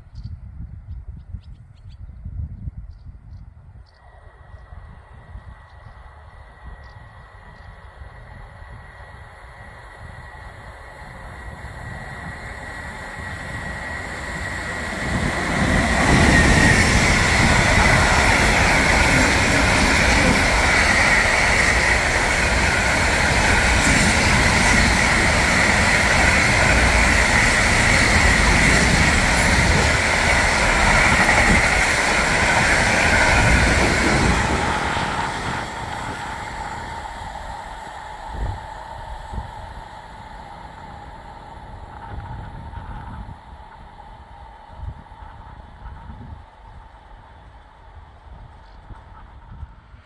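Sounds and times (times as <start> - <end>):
high-pitched whine: 4.0 - 43.8
freight train passing: 4.0 - 50.0.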